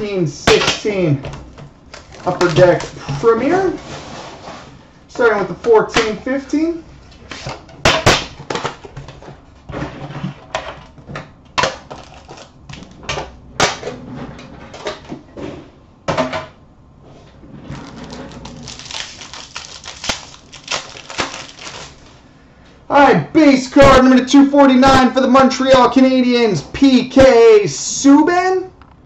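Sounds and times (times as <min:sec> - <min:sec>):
packaging rustling: 0:01.9 - 0:03.8, 0:11.8 - 0:13.0, 0:17.7 - 0:22.2.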